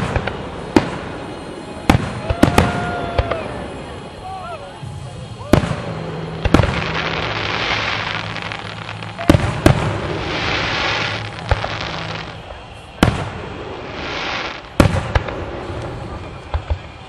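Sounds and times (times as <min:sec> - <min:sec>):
firework shells bursting: 0:00.0 - 0:04.2.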